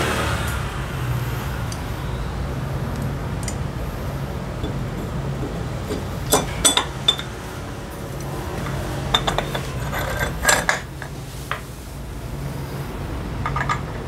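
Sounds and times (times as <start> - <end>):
steady low hum: 0.0 - 14.0
metal tools clinking: 5.4 - 7.4, 8.6 - 11.2.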